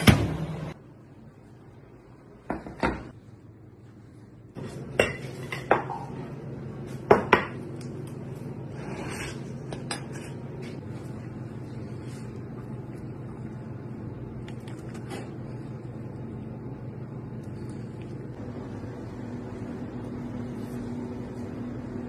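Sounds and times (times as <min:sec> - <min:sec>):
steady low hum: 0:00.0 - 0:22.0
knife and fork scraping: 0:08.7 - 0:10.4.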